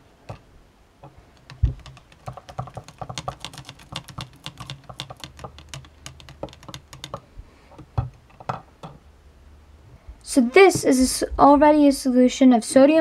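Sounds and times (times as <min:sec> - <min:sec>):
light clicks and taps: 0:00.3 - 0:09.0.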